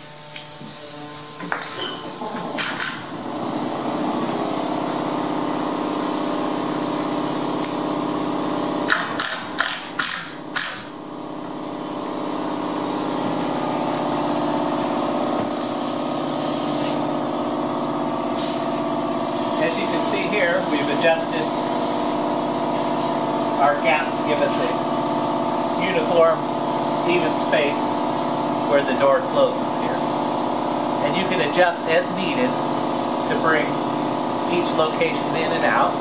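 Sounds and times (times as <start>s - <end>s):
power drill running: 8.6s - 11.0s.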